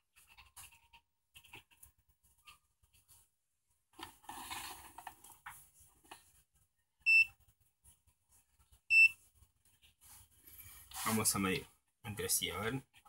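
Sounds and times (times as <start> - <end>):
rustling handling noise: 0.1 - 6.7.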